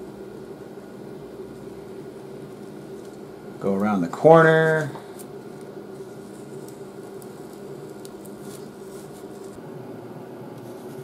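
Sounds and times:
low room hum: 0.0s - 11.0s
hot knife crackling through foam: 1.4s - 9.6s.

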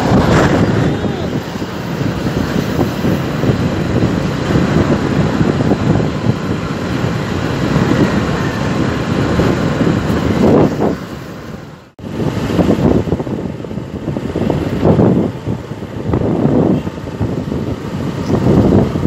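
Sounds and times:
motorcycle engine: 0.0s - 11.9s
road noise rumbling: 0.0s - 19.0s
wind rushing over microphone: 0.0s - 19.0s.

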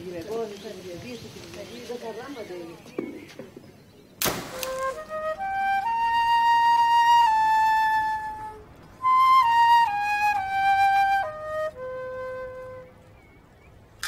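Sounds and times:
solo flute melody: 4.5s - 13.5s.

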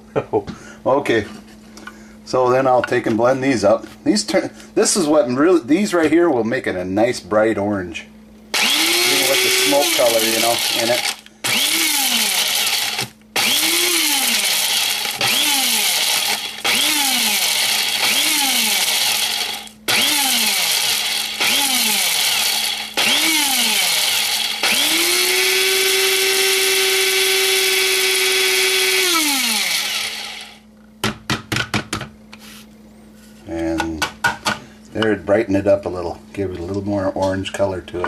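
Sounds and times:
electric blender motor whine: 8.5s - 30.6s.

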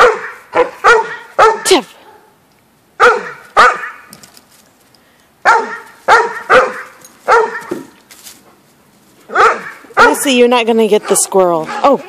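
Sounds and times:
dog barking: 0.0s - 2.3s, 3.0s - 4.1s, 5.4s - 7.9s, 9.3s - 10.3s.

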